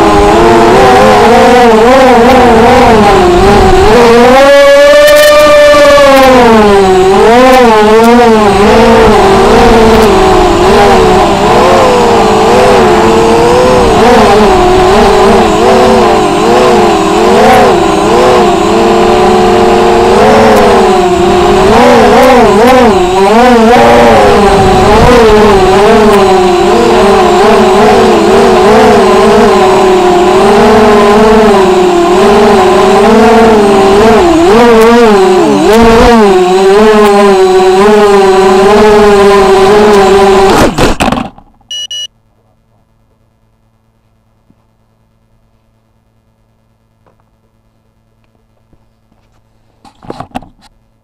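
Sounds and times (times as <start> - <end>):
quadcopter propellers buzzing whine: 0.0 - 42.1
brief beep: 41.7 - 42.2.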